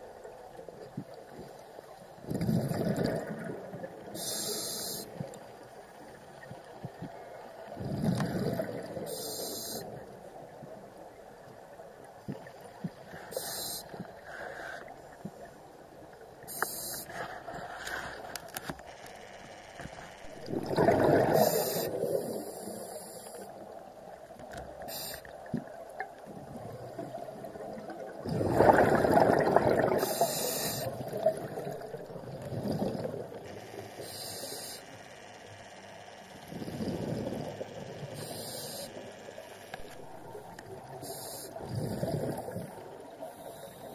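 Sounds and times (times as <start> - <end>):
bubbling exhalations: 2.3 - 3.7, 20.4 - 22.4, 28.2 - 33.4, 41.6 - 42.8
hissing regulator inhalations: 4.1 - 5.3, 9.1 - 10.0, 13.1 - 15.1, 16.5 - 18.4, 21.2 - 23.5, 24.8 - 25.4, 29.9 - 31.1, 33.8 - 35.3, 36.2 - 39.6, 40.9 - 43.9.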